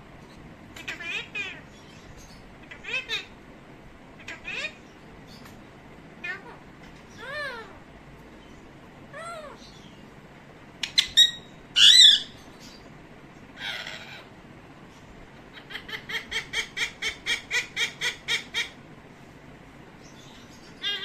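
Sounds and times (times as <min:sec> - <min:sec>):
parakeet squawking: 0:00.7 - 0:03.4, 0:04.2 - 0:05.5, 0:06.2 - 0:07.8, 0:09.1 - 0:10.0, 0:10.8 - 0:12.9, 0:13.6 - 0:14.4, 0:15.5 - 0:18.8, 0:20.1 - 0:21.0
parrot mimicking laugh: 0:13.6 - 0:14.3, 0:15.5 - 0:18.8, 0:20.8 - 0:21.0.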